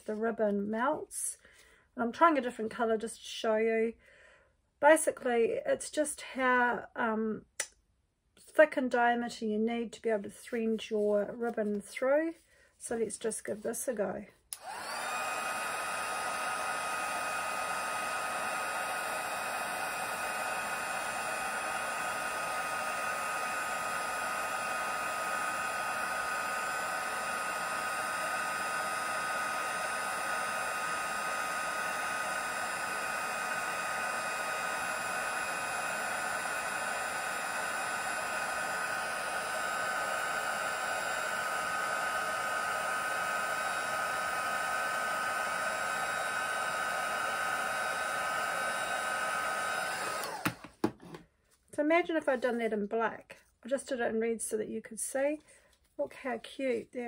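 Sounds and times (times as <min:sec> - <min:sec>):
heat tool blowing whir: 0:14.5 - 0:50.9.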